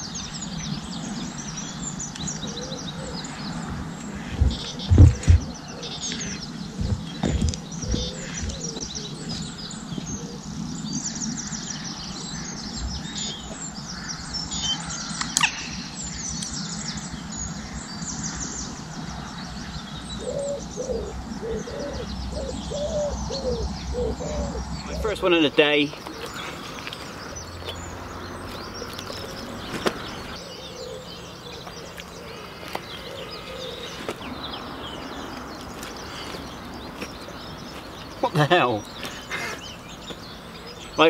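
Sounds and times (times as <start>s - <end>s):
low bird call: 0.0s - 41.0s
small birds chirping: 0.0s - 41.0s
low thumps: 3.6s - 10.1s.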